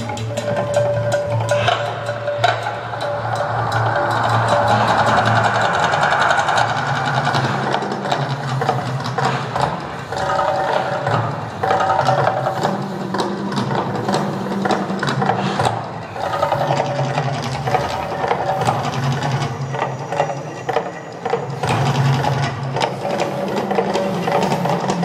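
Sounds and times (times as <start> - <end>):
amplified soundtrack: 0.0 - 9.1
fast rattling drumming: 0.0 - 25.0.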